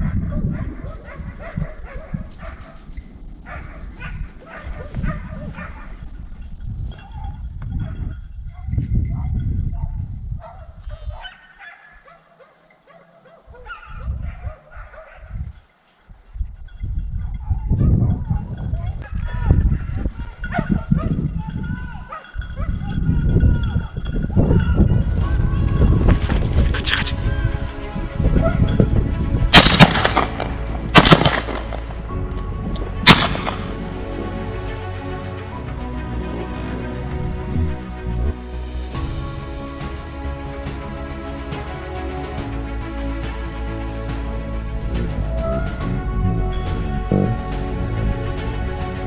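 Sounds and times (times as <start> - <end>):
dogs yelping and baying: 0.0 - 6.1, 6.9 - 15.4, 17.2 - 23.0, 44.8 - 47.1
low rumbles: 22.4 - 49.0
background music: 24.6 - 49.0
gunshots with echo: 29.5 - 32.0, 33.0 - 33.9.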